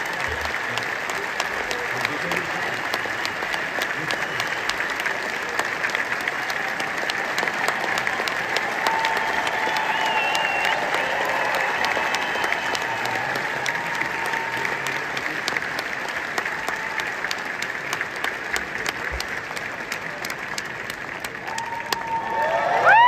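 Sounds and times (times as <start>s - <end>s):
large audience applauding: 0.0s - 23.0s.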